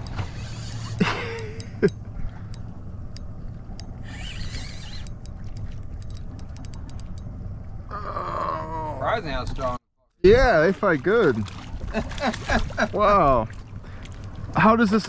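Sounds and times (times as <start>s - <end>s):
fishing reel clicking: 3.8s - 5.4s.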